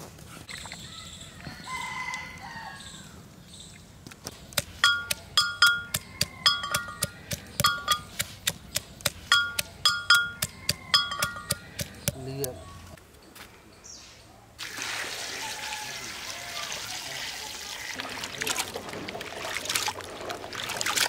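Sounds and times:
pestle clanging in metal mortar: 4.6s - 12.2s.

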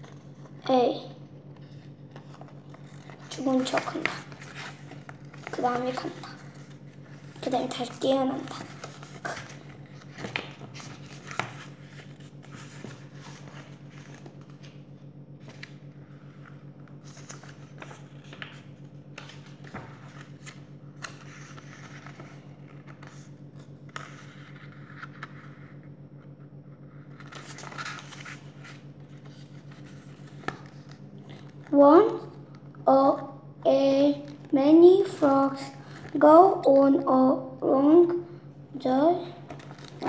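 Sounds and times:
steady low hum: 0.0s - 40.0s
book pages rustling: 1.5s - 32.3s, 34.2s - 36.8s, 39.2s - 40.0s.

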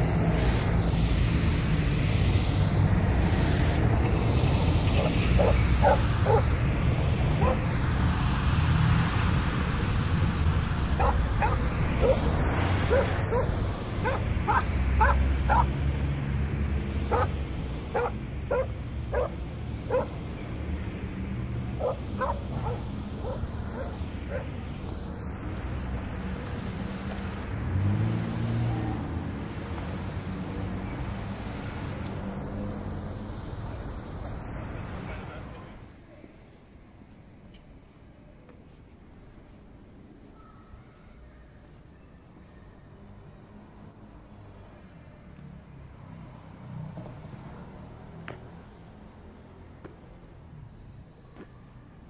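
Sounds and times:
dog yapping: 7.4s - 7.6s, 11.0s - 12.2s, 12.9s - 15.7s, 17.1s - 17.3s, 18.0s - 19.3s, 21.8s - 24.5s.

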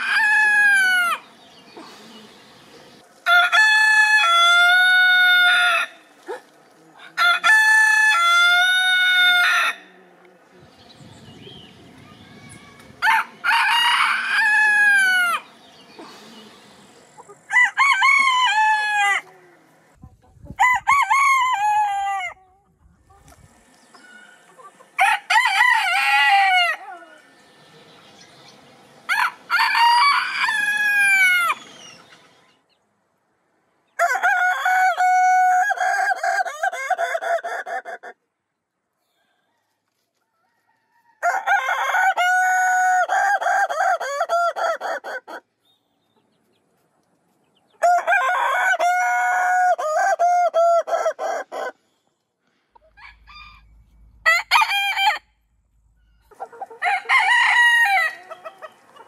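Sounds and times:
roosters crowing: 0.0s - 10.0s, 11.4s - 20.0s, 20.6s - 22.5s, 23.4s - 32.4s, 33.9s - 38.2s, 40.4s - 45.5s, 47.8s - 51.8s, 52.8s - 59.0s
rooster stuttering crow: 56.8s - 58.4s.

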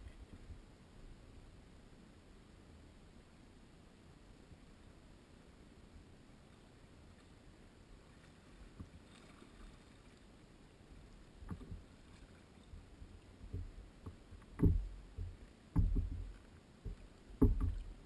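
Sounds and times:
water splashing against hull: 8.0s - 18.0s
knocks on kayak hull: 13.5s - 18.0s.

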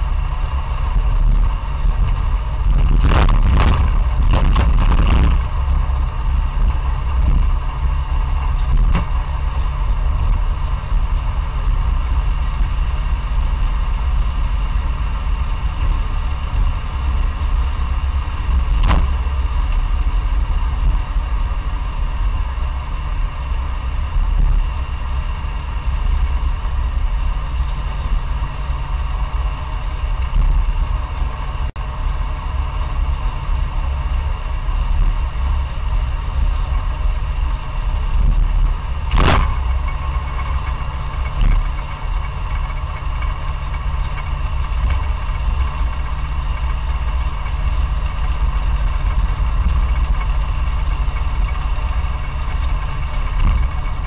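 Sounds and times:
car engine running: 0.0s - 54.0s
road noise: 0.0s - 54.0s
sharp clatters: 39.0s - 54.0s.

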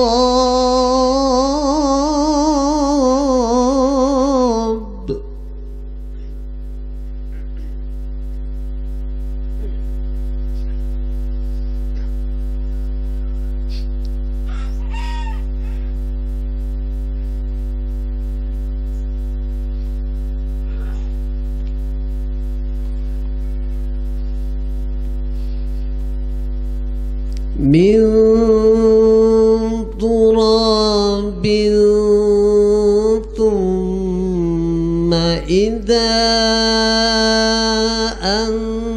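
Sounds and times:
man chanting recitation: 0.0s - 5.3s, 27.6s - 38.9s
electrical mains hum: 0.0s - 38.9s.

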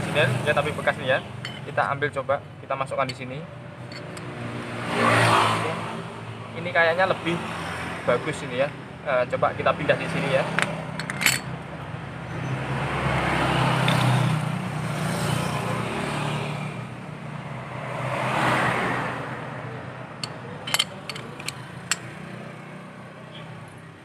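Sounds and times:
passing vehicle engine: 3.9s - 6.1s, 9.8s - 24.0s
sharp metallic clicks: 20.2s - 22.2s.

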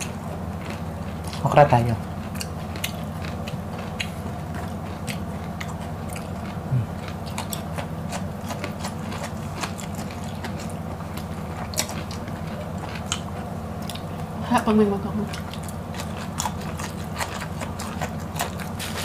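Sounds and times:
people chewing crunchy okra: 0.0s - 14.4s, 15.1s - 19.0s
steady low hum: 0.0s - 19.0s.

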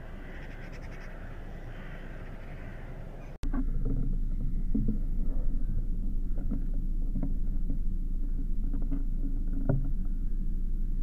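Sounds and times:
low rumble: 3.4s - 11.0s.

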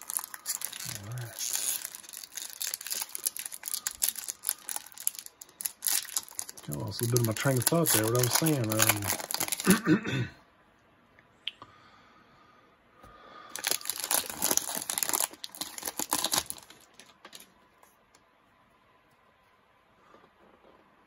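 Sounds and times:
foil wrapper tearing and crinkling: 0.0s - 9.8s, 13.5s - 17.4s.

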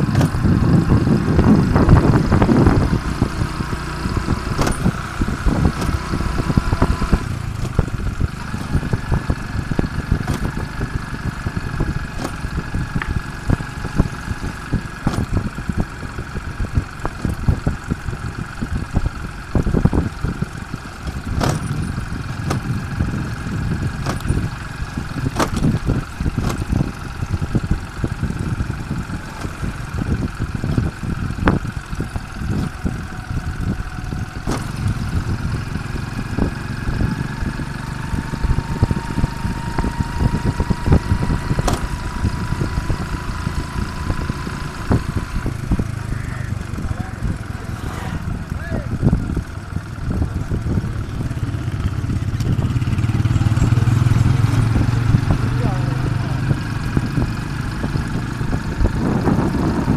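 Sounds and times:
motorcycle engine running: 0.0s - 59.9s
wind rushing over microphone: 0.0s - 59.9s
sharp knocks and rattles: 10.0s - 10.8s, 14.9s - 15.5s, 21.0s - 22.9s, 23.9s - 26.9s.

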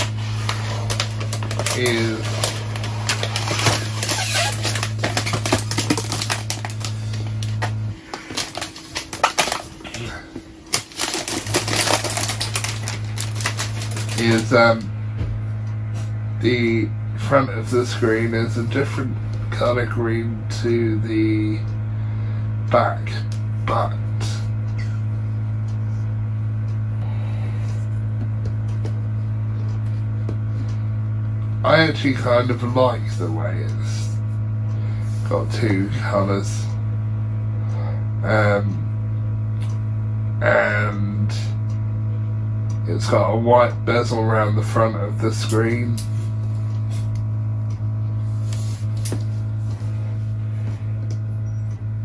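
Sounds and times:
plastic wrapping crackling: 0.0s - 10.0s, 10.7s - 14.5s
steady low hum: 0.0s - 52.0s.

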